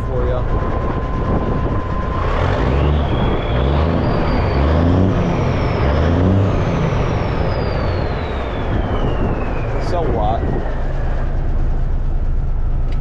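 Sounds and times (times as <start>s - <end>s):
diesel engine revving: 0.0s - 13.0s
turbocharger whine: 0.0s - 13.0s.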